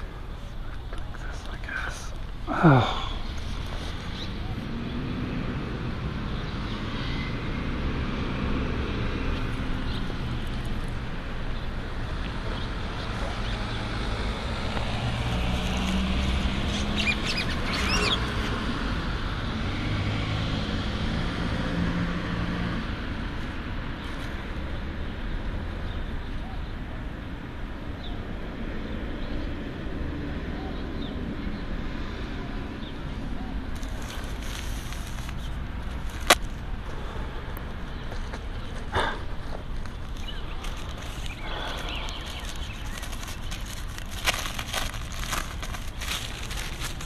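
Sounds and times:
traffic rumble: 0.0s - 47.0s
bird chirping: 16.7s - 18.3s, 37.8s - 44.0s.

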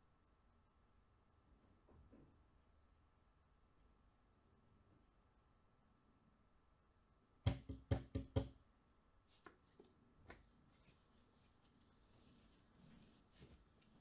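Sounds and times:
loud knocks on a door: 7.5s - 8.6s.

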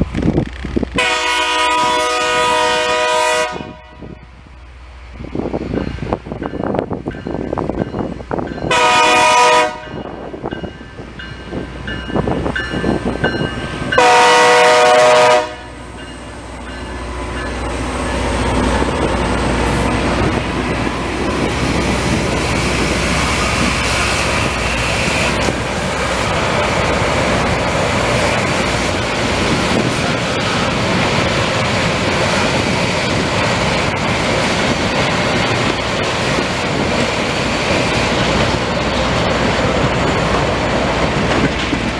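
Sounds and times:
train horn blasts: 1.0s - 4.2s, 8.7s - 10.1s, 14.0s - 15.8s.

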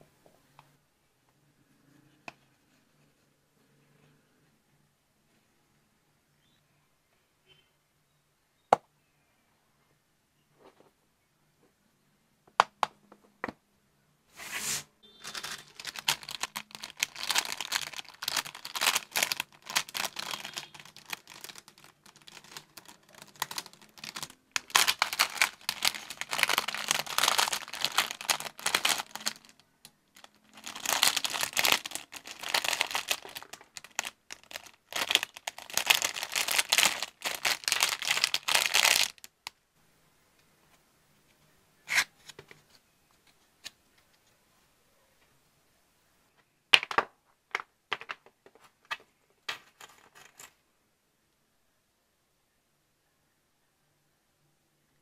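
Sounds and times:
packaging crinkling by hand: 15.2s - 39.5s.

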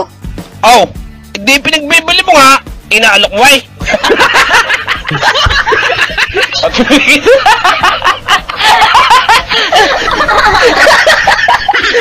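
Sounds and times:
several people laughing: 3.8s - 12.0s.

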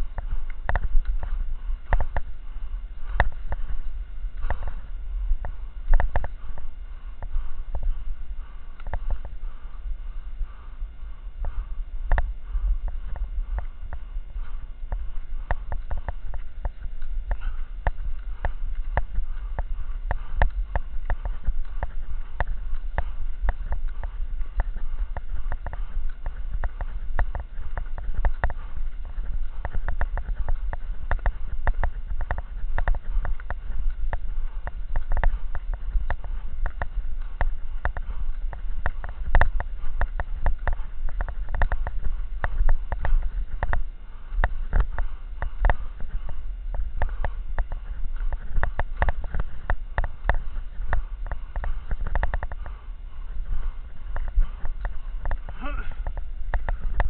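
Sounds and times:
low camera rumble: 0.0s - 57.0s
ski poles clicking on snow: 13.0s - 57.0s.

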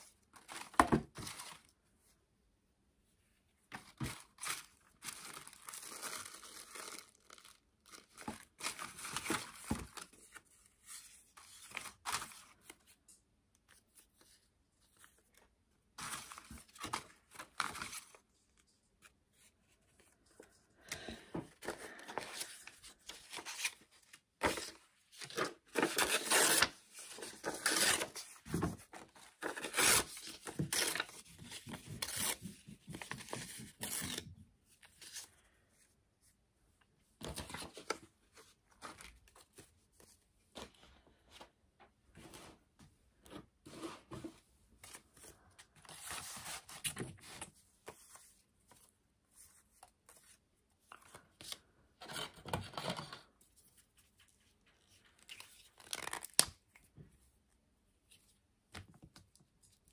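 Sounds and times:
paper tearing and rustling: 24.4s - 34.3s.

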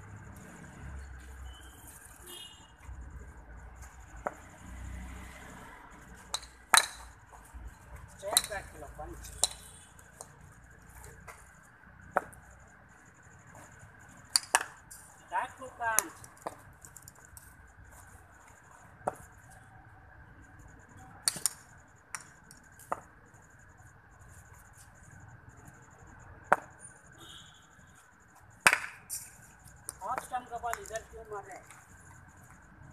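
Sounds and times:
ball bouncing on concrete: 4.1s - 4.5s, 6.1s - 7.5s, 8.1s - 10.4s, 11.0s - 12.5s, 14.3s - 14.9s, 15.9s - 17.5s, 19.0s - 19.3s, 21.2s - 23.1s, 26.5s - 26.8s, 28.6s - 31.8s.

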